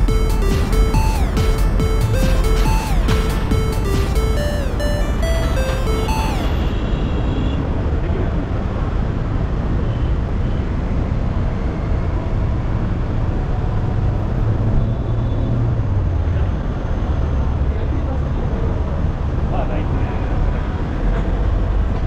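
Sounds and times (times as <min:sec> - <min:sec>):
electronic music jingle: 0:00.0 - 0:06.8.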